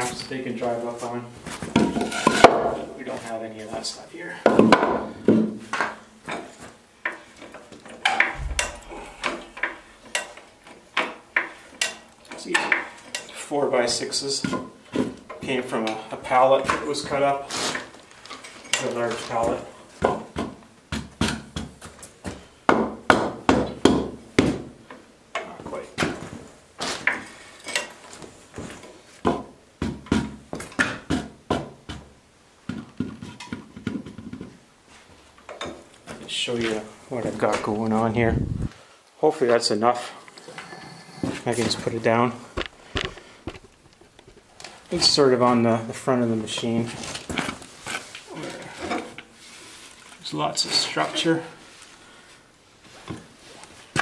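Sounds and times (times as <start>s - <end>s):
wooden and metal knocks: 8.0s - 10.4s
short low rumble: 8.4s - 9.6s.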